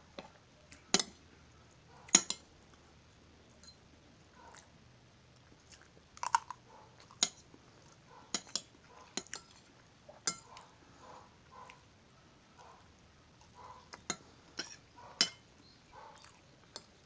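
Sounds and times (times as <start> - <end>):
cutlery clinking on a plate: 2.1 - 2.4, 8.3 - 9.6, 10.2 - 10.5, 14.0 - 15.4
cutlery scraping a plate: 2.1 - 2.4, 8.3 - 10.5, 14.0 - 15.4.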